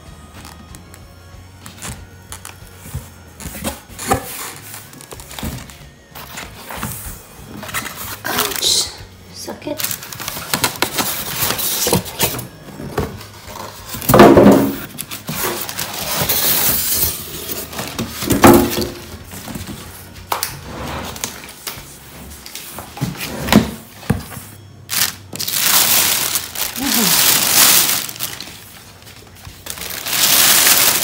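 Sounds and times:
plastic wrapping crinkling: 0:01.6 - 0:20.4, 0:24.9 - 0:31.0
styrofoam squeaking against cardboard: 0:29.6 - 0:31.0.

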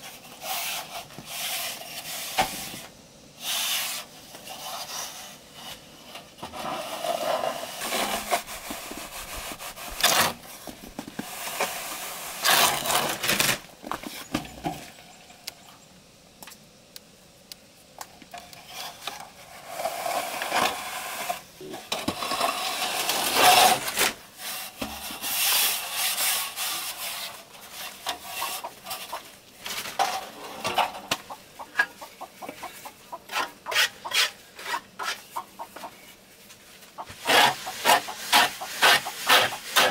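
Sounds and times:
metal straightedge scraping wet plaster: 0:12.4 - 0:13.6, 0:18.7 - 0:29.2, 0:33.3 - 0:35.2, 0:37.2 - 0:39.9.

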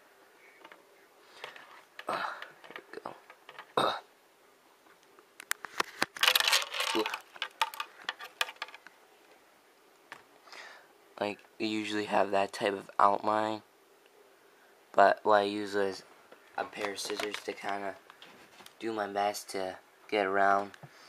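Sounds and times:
plastic mask handling noise: 0:00.4 - 0:03.8, 0:05.0 - 0:09.4, 0:16.4 - 0:18.8.

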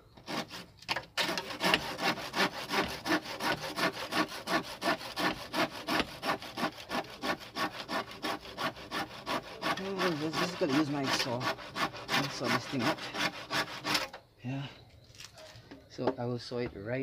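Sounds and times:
handsaw cutting bamboo: 0:00.2 - 0:14.1.

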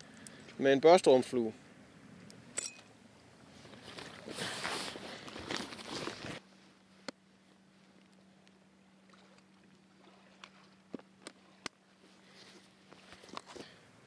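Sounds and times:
faint steady hum: 0:00.0 - 0:14.0
gear rustling in a pack: 0:03.5 - 0:06.4.

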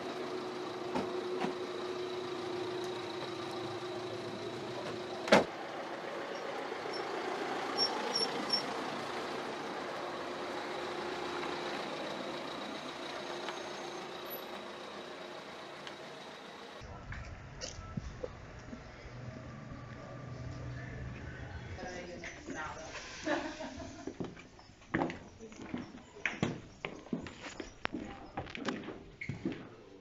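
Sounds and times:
car engine running: 0:00.0 - 0:16.8
street traffic noise: 0:00.0 - 0:30.0
car door shutting: 0:04.8 - 0:05.5.

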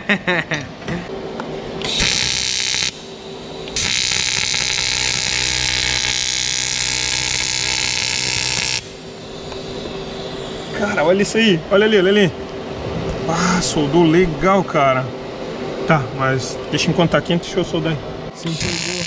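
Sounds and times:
welding arc hissing buzz: 0:01.1 - 0:12.5, 0:18.4 - 0:19.0.

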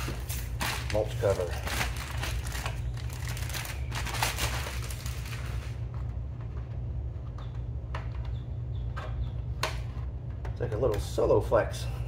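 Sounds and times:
plastic bag crinkling: 0:00.0 - 0:05.8
low steady hum: 0:00.0 - 0:12.0.

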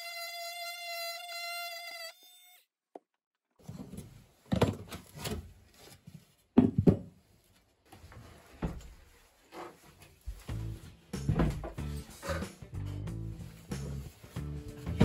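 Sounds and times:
oscillating multi-tool buzzing: 0:00.0 - 0:02.7.

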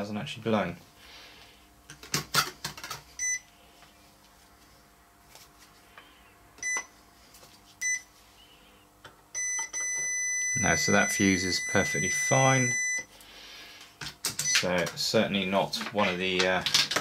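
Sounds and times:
multimeter beeps: 0:03.2 - 0:03.5, 0:06.6 - 0:06.9, 0:07.8 - 0:08.1, 0:09.4 - 0:13.1, 0:14.4 - 0:14.8.

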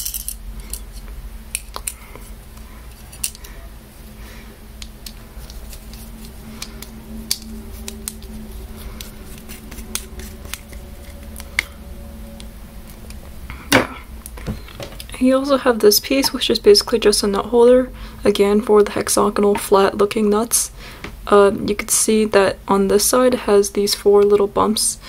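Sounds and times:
faint steady hum: 0:00.0 - 0:25.0.

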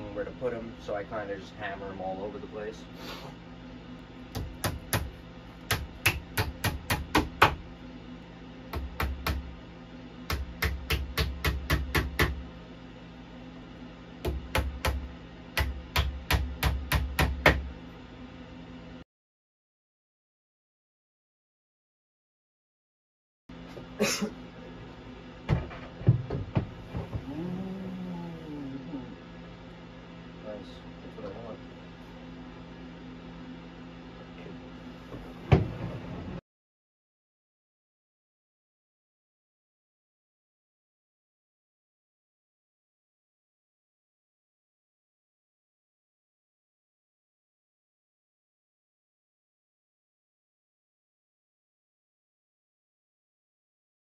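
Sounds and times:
hammer tapping nails: 0:10.3 - 0:12.4.

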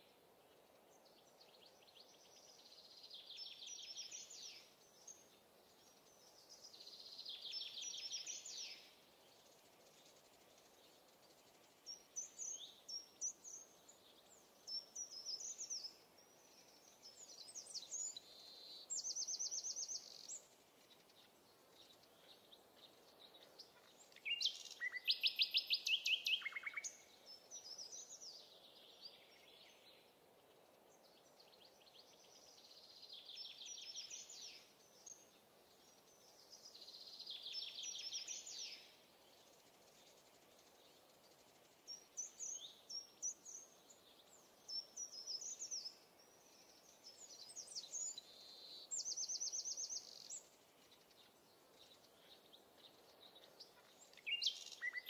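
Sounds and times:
faint steady hiss: 0:00.0 - 0:55.0
songbirds chirping and trilling: 0:00.0 - 0:55.0.

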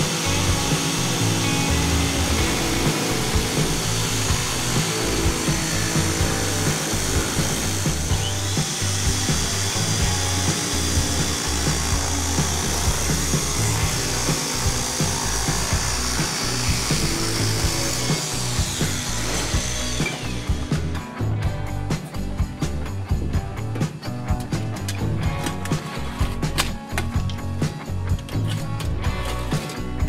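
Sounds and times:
electric metal shear cutting: 0:00.0 - 0:21.2
background music: 0:00.0 - 0:30.0.

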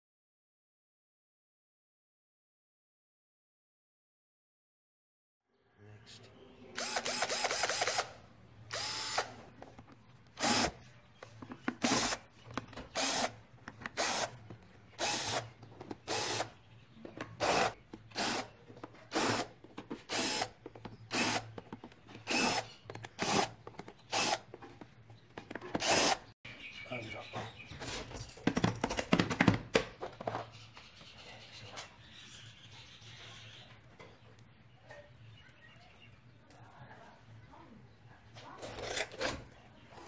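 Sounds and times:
cordless drill bursts: 0:06.8 - 0:09.4, 0:10.4 - 0:10.8, 0:11.8 - 0:12.2, 0:12.9 - 0:13.4, 0:14.0 - 0:14.3, 0:15.0 - 0:15.4, 0:16.1 - 0:16.5, 0:17.4 - 0:18.5, 0:19.1 - 0:19.5, 0:20.1 - 0:21.5, 0:22.2 - 0:23.5, 0:24.1 - 0:24.4, 0:25.8 - 0:26.2.

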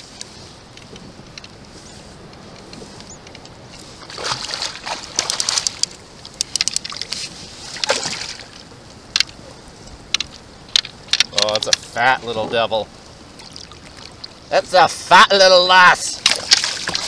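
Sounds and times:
fish thrashing and splashing: 0:04.0 - 0:08.6, 0:16.2 - 0:17.0.

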